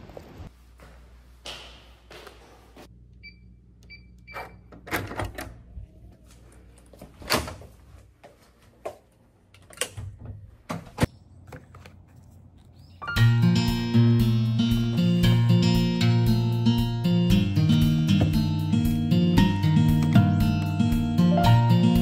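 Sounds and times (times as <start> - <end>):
footsteps indoors: 0.0 - 2.9, 6.1 - 12.4, 17.6 - 18.7.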